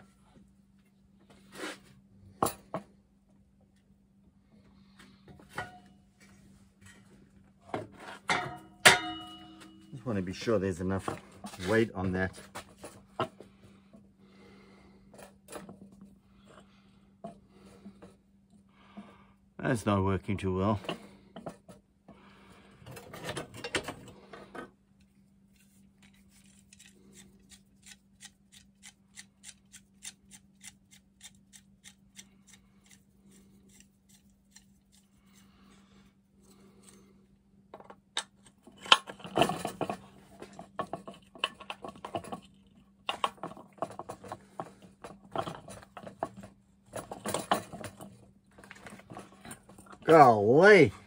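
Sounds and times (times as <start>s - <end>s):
faint steady hum: 0.0s - 51.0s
metallic clanks and clatter: 7.7s - 9.9s, 22.8s - 24.7s, 38.5s - 50.0s.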